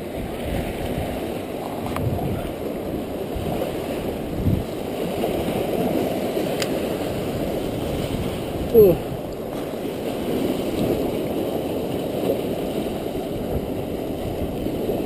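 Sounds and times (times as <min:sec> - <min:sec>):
surf washing against rocks: 0:00.0 - 0:15.0
wind on microphone: 0:00.0 - 0:15.0
faint sharp clicks: 0:06.6 - 0:06.8.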